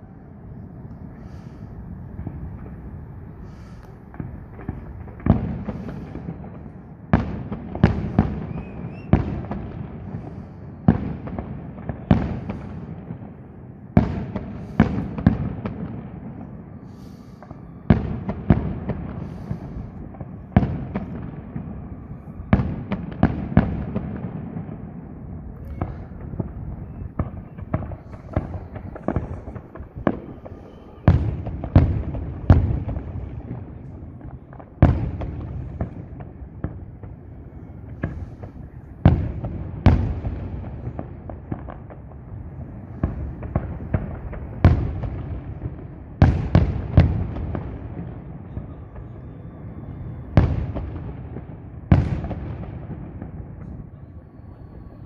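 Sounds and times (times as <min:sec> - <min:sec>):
fireworks bursting with bangs: 0:00.0 - 0:55.0
fireworks pops and crackles: 0:00.8 - 0:55.0.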